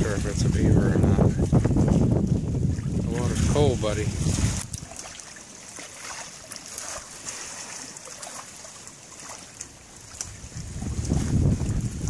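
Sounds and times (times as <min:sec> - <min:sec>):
wind buffeting microphone: 0:00.0 - 0:05.1, 0:10.0 - 0:12.0
wind hiss over water: 0:00.0 - 0:12.0
small ripple splashes: 0:02.7 - 0:12.0.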